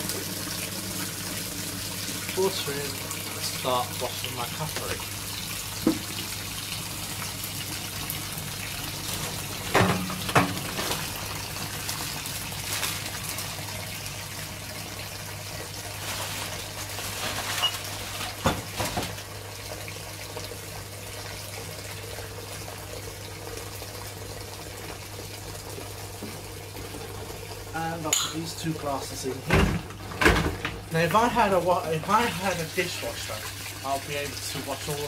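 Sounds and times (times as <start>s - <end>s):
tap running into sink: 4.6s - 5.0s, 5.8s - 6.4s, 9.1s - 11.1s, 25.7s - 27.0s.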